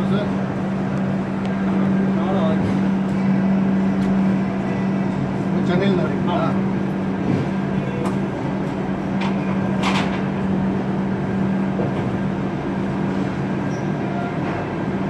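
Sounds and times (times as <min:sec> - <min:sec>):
low mechanical hum and rumble: 0:00.0 - 0:15.0.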